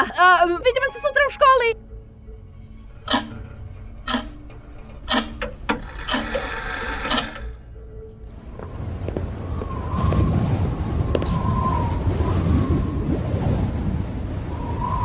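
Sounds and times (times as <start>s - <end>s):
dense rattling: 2.9s - 7.6s
rushing wind-like noise: 8.4s - 15.0s.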